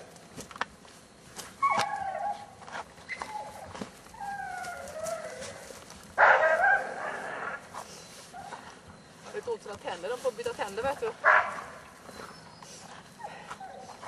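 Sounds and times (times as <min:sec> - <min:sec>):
puppy whining and barking: 0:01.6 - 0:02.5, 0:03.1 - 0:05.6.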